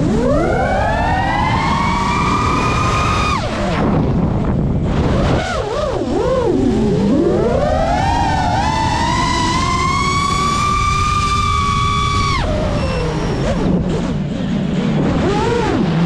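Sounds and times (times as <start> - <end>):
quadcopter motors whining: 0.0 - 16.0.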